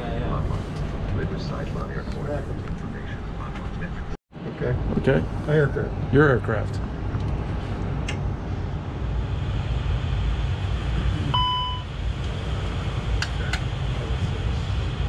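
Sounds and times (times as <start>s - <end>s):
low cockpit rumble: 0.0s - 15.0s
short electronic beep: 11.3s - 11.9s.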